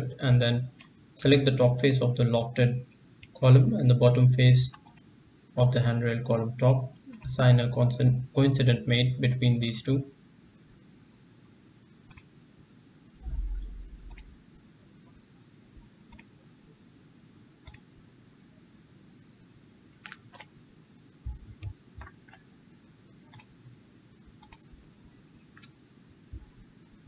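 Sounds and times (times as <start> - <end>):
computer mouse clicking: 4.7 - 5.1, 7.1 - 7.3, 12.1 - 12.4, 14.0 - 14.3, 16.1 - 16.4, 17.6 - 17.9, 20.0 - 20.6, 21.3 - 22.5, 23.3 - 23.6, 24.3 - 24.9, 25.5 - 25.8
low thump: 13.2 - 14.4.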